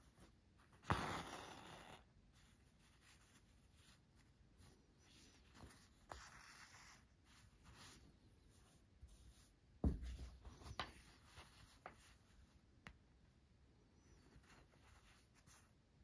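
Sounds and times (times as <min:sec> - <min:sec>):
cloth and thread rustling: 0:02.3 - 0:13.0
soft thump: 0:09.8 - 0:10.3.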